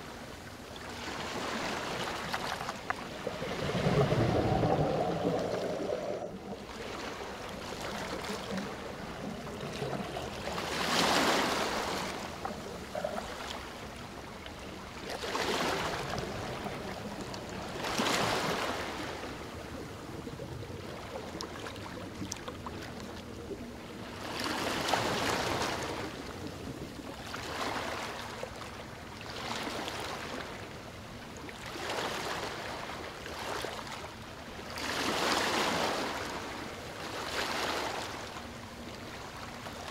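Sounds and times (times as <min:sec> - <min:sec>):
rushing water: 0:00.0 - 0:28.7.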